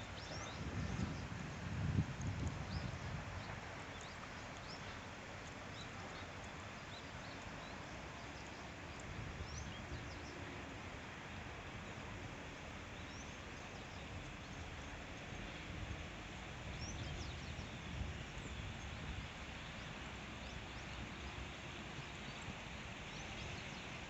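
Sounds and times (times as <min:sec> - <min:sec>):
steady rush of outdoor noise: 0:00.0 - 0:24.0.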